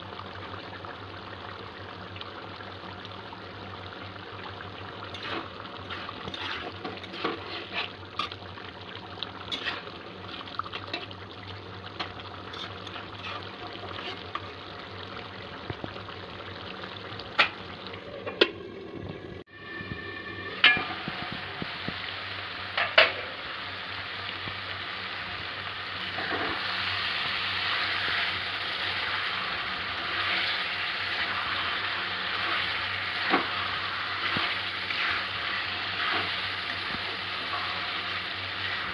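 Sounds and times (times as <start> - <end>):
curry sizzling and bubbling: 0.0 - 38.9
spatula scraping and tapping pan: 5.1 - 8.4, 9.5 - 9.9, 12.0 - 14.5.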